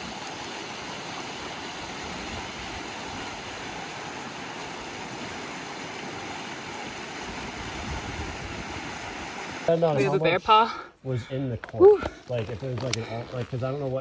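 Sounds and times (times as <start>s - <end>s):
creek rushing over rocks: 0.0s - 10.6s.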